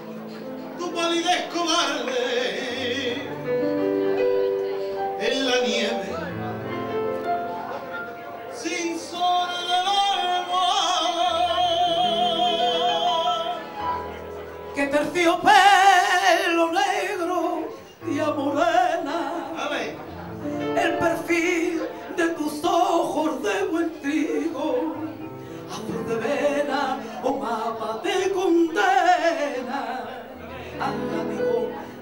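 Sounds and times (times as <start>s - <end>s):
young man singing: 0.6s - 3.8s, 5.2s - 6.6s, 8.5s - 14.1s, 14.7s - 32.0s
instrumental accompaniment: 1.9s - 32.0s
woman singing: 14.8s - 19.8s, 20.8s - 32.0s.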